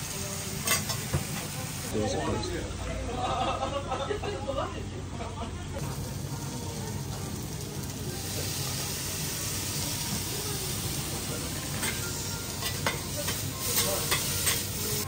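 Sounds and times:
food sizzling on griddle: 0:00.0 - 0:01.9, 0:05.8 - 0:15.0.

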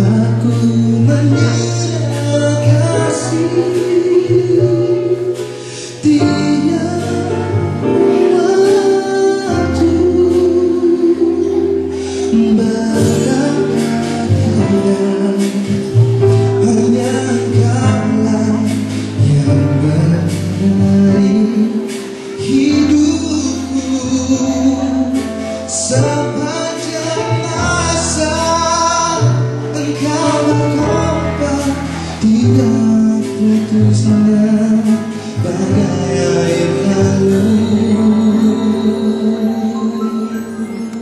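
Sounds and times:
instrumental accompaniment: 0:00.0 - 0:41.0
man singing into a microphone: 0:00.0 - 0:41.0.

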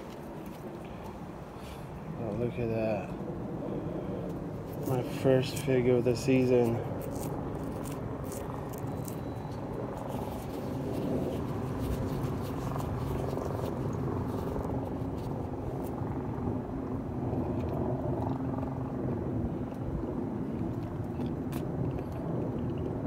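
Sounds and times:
machine rumble and hum: 0:06.1 - 0:23.0.

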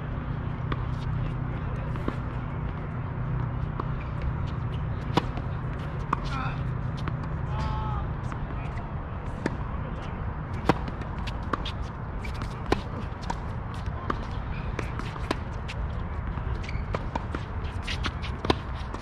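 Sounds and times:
steady low rumble: 0:00.0 - 0:16.6
tennis balls hit and bouncing: 0:00.0 - 0:19.0.

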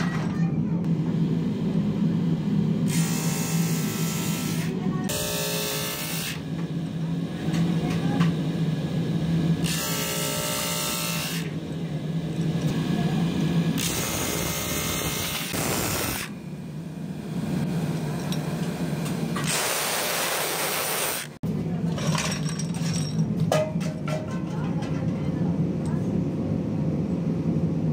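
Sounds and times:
electric motor humming: 0:00.9 - 0:07.2, 0:08.3 - 0:21.4
metal clattering onto concrete floor: 0:21.9 - 0:25.3.

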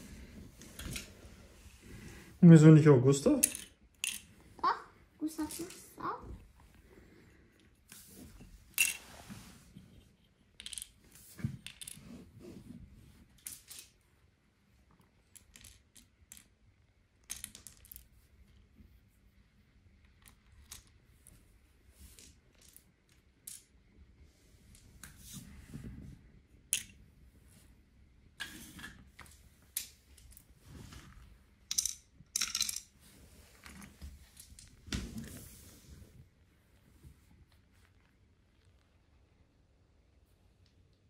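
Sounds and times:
wooden toy trains clicking and knocking: 0:03.2 - 0:04.8, 0:05.4 - 0:06.2, 0:10.4 - 0:12.2, 0:15.2 - 0:18.1, 0:31.7 - 0:32.9.

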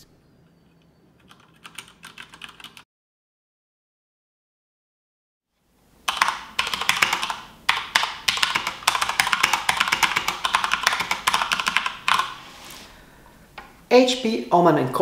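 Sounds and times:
mechanical keyboard typing: 0:01.2 - 0:02.8, 0:06.1 - 0:12.4.

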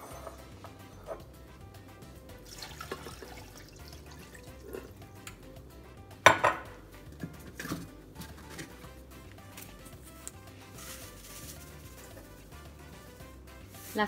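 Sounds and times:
faint background music: 0:00.0 - 0:14.0
water pouring into blender: 0:02.4 - 0:04.6
glassware knocking: 0:06.2 - 0:06.8.

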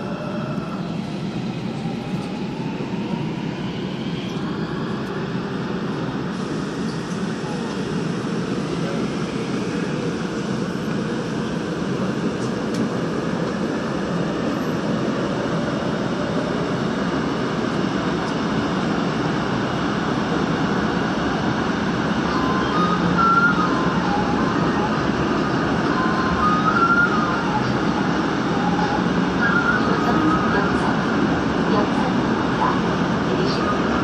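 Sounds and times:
subway train wheels rumbling on rails: 0:00.0 - 0:34.0.

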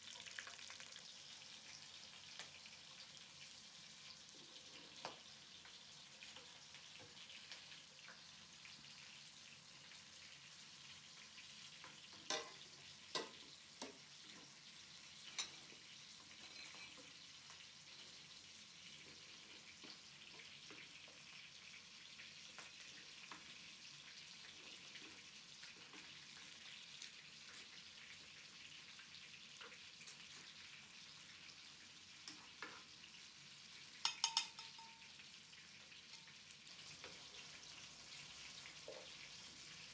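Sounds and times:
oil sizzling in a frying pan: 0:00.0 - 0:39.9
utensil clicking against pan: 0:34.0 - 0:35.1.

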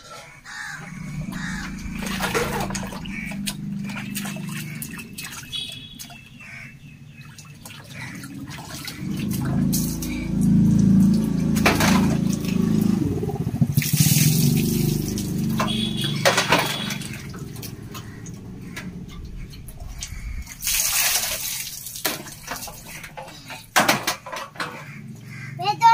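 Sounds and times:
water splashing on tiled floor: 0:00.5 - 0:25.4
water dripping: 0:00.7 - 0:23.8
water pouring from bucket: 0:01.9 - 0:05.9, 0:07.2 - 0:15.8, 0:20.0 - 0:23.7.

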